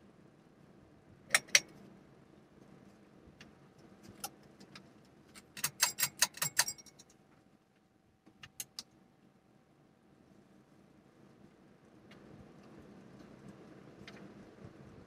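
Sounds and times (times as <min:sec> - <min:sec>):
faint fan hum: 0:00.0 - 0:15.0
pull-chain switch clicks: 0:01.3 - 0:01.7, 0:05.4 - 0:07.0
metal bead chains rattling: 0:05.6 - 0:07.0.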